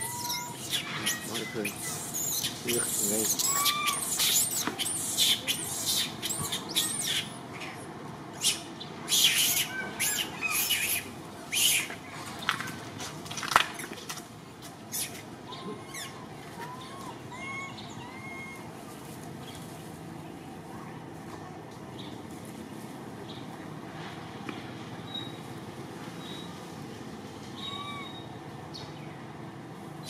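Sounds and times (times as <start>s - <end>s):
high-pitched animal chirping and squealing: 0.0s - 11.9s, 14.9s - 18.6s, 27.6s - 28.3s
soft clipped animal calls: 0.0s - 12.6s, 14.9s - 18.7s, 27.5s - 28.4s.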